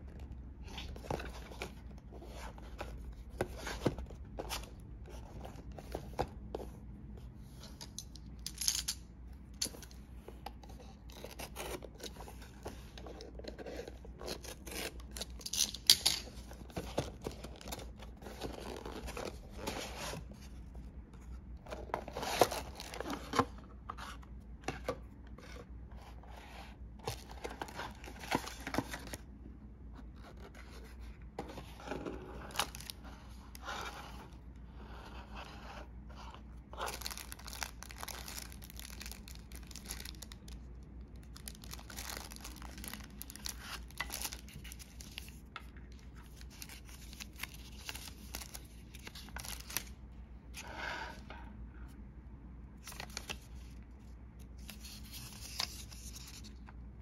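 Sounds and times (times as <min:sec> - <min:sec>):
packaging tearing and crinkling: 0:36.9 - 0:40.6, 0:41.4 - 0:45.3.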